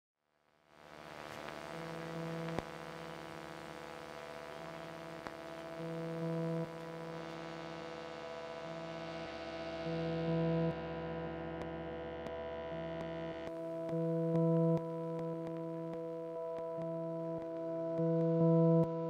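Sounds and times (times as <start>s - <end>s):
electronic ambient drone: 1.1s - 19.0s.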